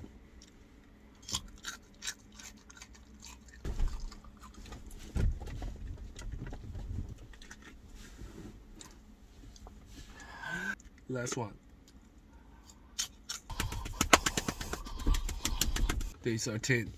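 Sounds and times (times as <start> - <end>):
garlic being chewed and crunched: 0.4 - 4.9
muffled bumps and rustling: 3.6 - 10.2.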